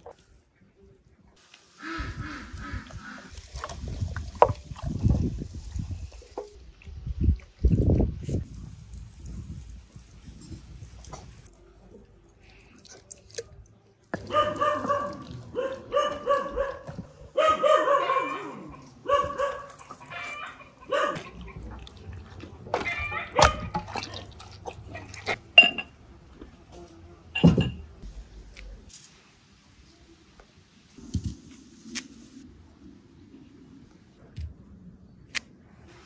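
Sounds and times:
dog barking: 14.2s - 21.6s, 22.8s - 23.7s.

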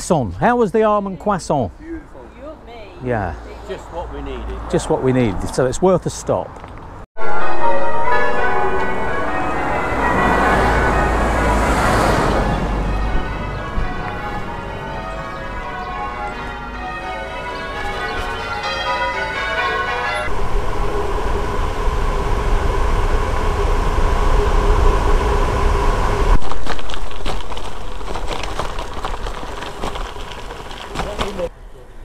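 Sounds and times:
church bells ringing: 7.2s - 21.6s
steady hum: 20.3s - 26.7s
bicycle tyres on gravel: 25.5s - 31.5s.

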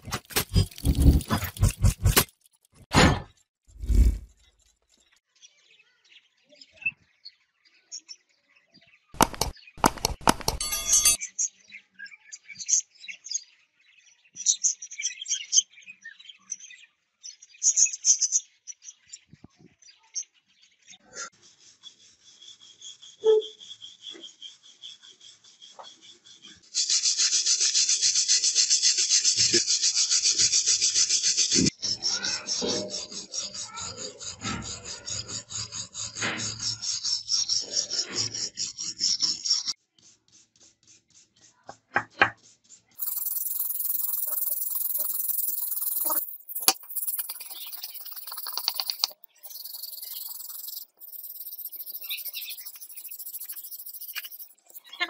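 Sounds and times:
clicks: 9.2s - 11.2s, 43.0s - 51.8s
steady rasping: 33.1s - 39.5s, 43.0s - 55.0s.

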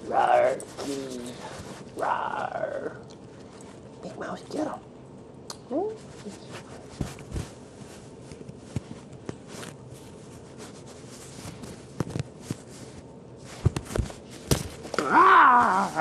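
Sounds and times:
kitten play-fighting on carpet: 6.0s - 16.0s.

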